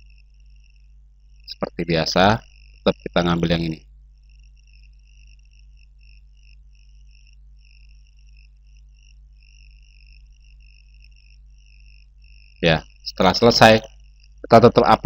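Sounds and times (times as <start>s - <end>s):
steady low hum: 0.0s - 15.0s
high chirping: 1.5s - 3.8s.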